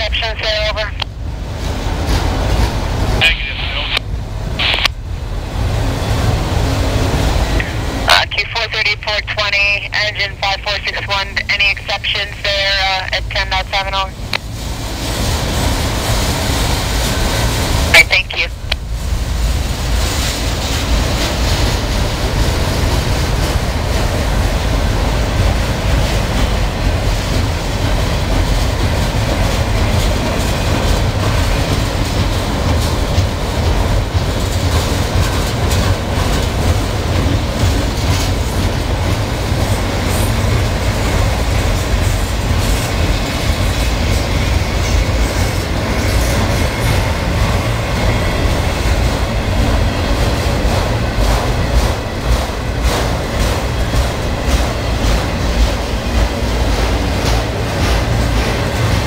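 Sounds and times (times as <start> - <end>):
train wheels rumbling on rail: 0.0 - 59.0
wheels clacking over rail joints: 20.0 - 59.0.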